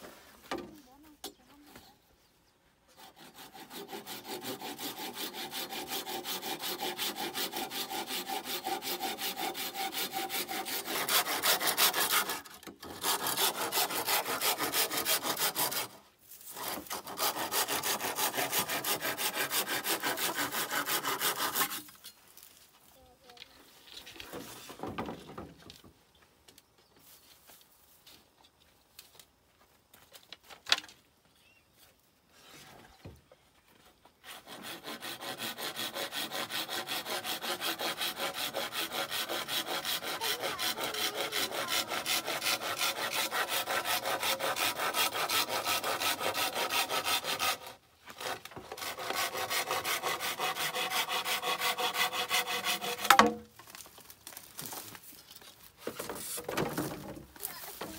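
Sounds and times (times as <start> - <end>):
hand saw cutting bamboo: 2.9 - 22.1, 34.2 - 54.9.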